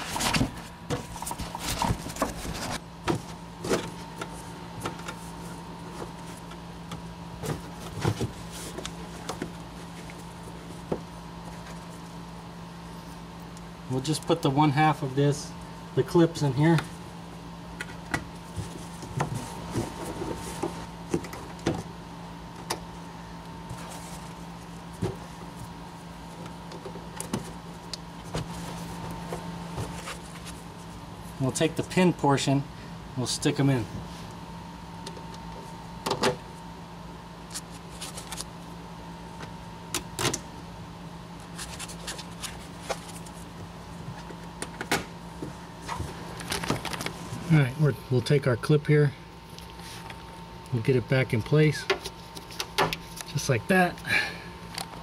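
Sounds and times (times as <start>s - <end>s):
steady low hum: 0.0s - 55.0s.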